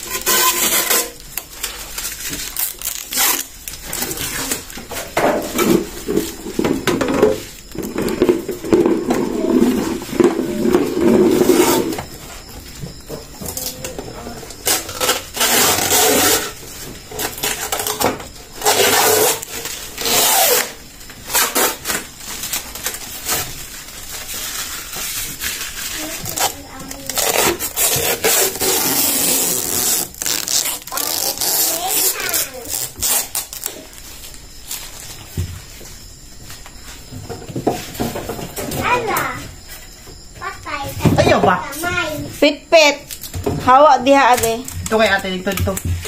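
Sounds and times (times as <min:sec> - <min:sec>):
plastic film crinkling: 0:00.0 - 0:05.0, 0:18.7 - 0:35.3
plastic bins knocking: 0:04.1 - 0:14.1.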